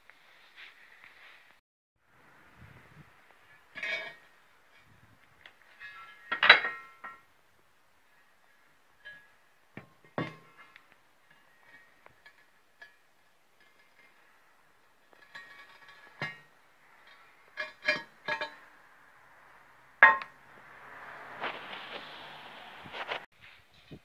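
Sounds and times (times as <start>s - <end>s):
steel plates clinking and knocking: 5.5s - 7.3s, 9.0s - 18.9s, 20.0s - 20.4s.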